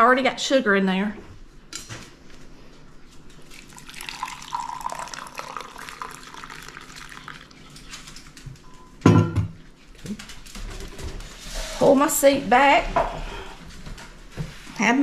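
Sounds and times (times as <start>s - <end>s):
coffee pouring into a mug: 3.5s - 7.9s.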